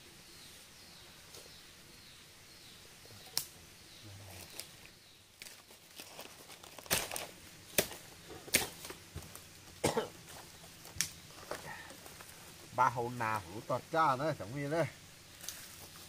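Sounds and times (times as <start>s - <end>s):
sharp crackles and rustles: 4.2s - 12.8s, 15.2s - 16.0s.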